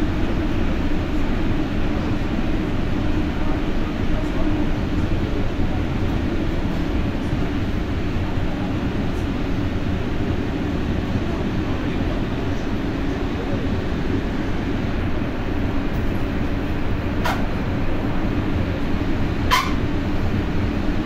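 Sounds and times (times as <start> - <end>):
train interior rumble: 0.0 - 21.0.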